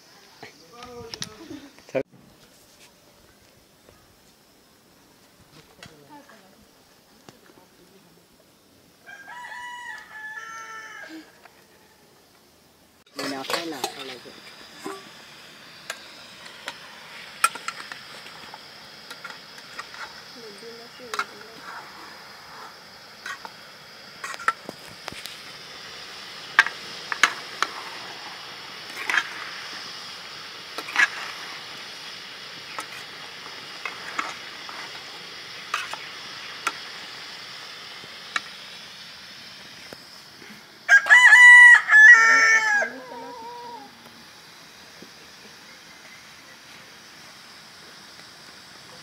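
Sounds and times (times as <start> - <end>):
steady hiss: 0.0 - 49.0
rooster crowing: 9.0 - 12.1, 40.9 - 44.0
metal ladle scraping wok: 24.2 - 25.4, 30.8 - 31.8.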